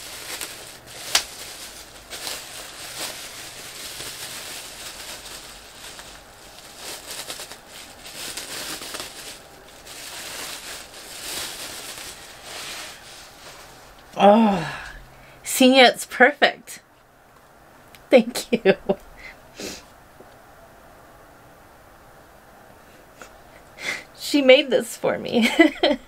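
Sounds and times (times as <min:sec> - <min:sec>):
bubble wrap snapping: 0:00.0 - 0:13.1
bubble wrap crinkling: 0:00.0 - 0:14.2.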